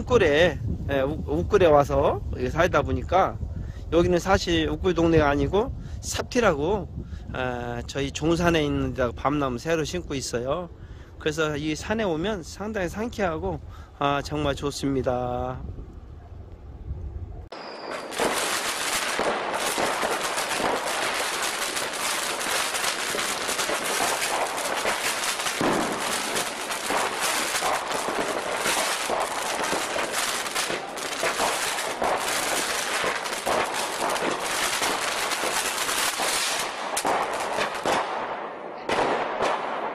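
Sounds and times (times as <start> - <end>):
fireworks crackling and popping: 17.5 - 39.9.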